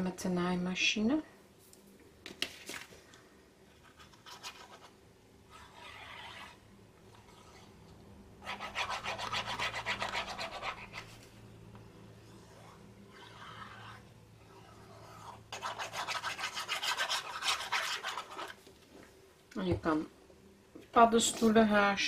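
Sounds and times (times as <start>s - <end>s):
glue applicator scratching paper: 5.5s - 6.6s, 8.4s - 11.2s, 12.3s - 18.6s.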